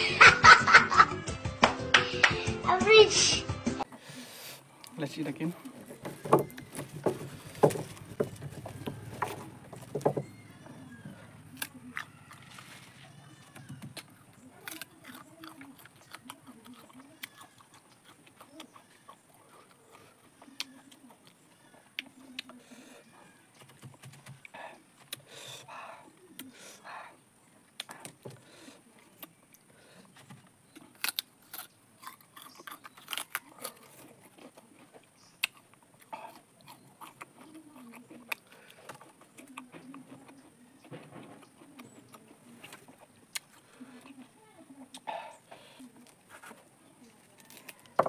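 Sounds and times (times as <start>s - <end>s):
pod shell crackling: 4.8s - 19.2s, 30.6s - 43.6s, 45.9s - 48.0s
chewing sticky pulp: 4.8s - 27.0s, 27.6s - 48.0s.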